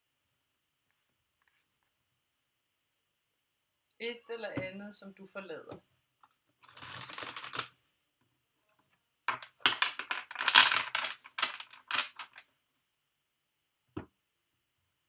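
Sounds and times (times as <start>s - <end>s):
cards rustling: 6.6s - 7.7s, 9.3s - 12.4s.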